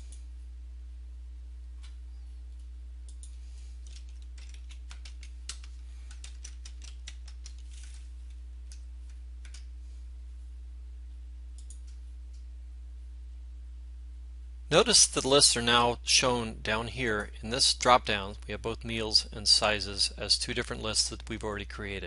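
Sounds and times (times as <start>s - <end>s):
steady low hum: 0.0s - 22.0s
keyboard typing: 3.1s - 8.0s, 8.7s - 9.7s.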